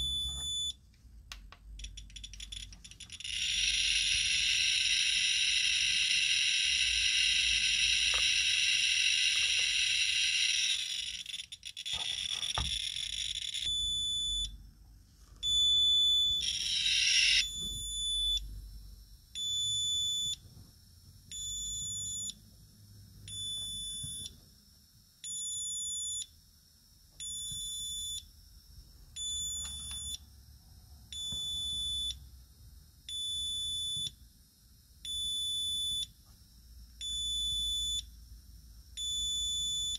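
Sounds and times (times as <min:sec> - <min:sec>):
high alarm beeps: 0:00.0 - 0:00.8, 0:15.4 - 0:18.5
radiation meter buzzing: 0:02.4 - 0:14.5.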